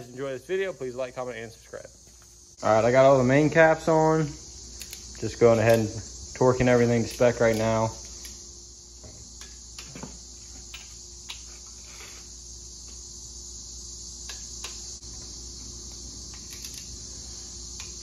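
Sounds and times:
crickets chirring: 0.0s - 18.0s
torque wrench clicks: 4.8s - 6.0s, 7.1s - 8.4s.

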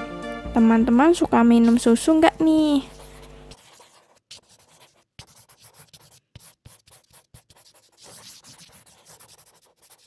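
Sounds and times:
marker pen squeaking on paper: 2.8s - 10.0s
pen tapping on paper: 3.0s - 10.0s.

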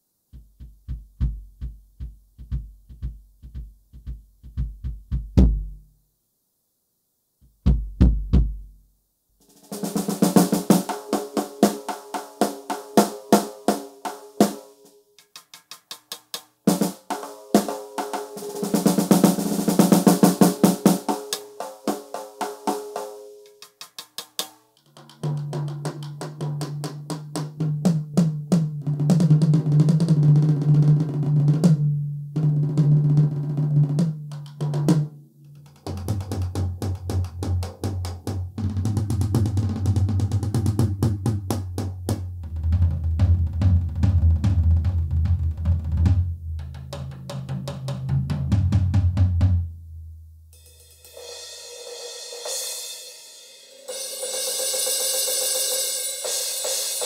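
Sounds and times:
low floor tom strokes: 0.3s - 5.8s
electronic snare drum rolls: 0.4s - 5.8s, 9.4s - 24.6s, 35.8s - 49.6s
electronic tom drum runs: 0.4s - 5.8s.

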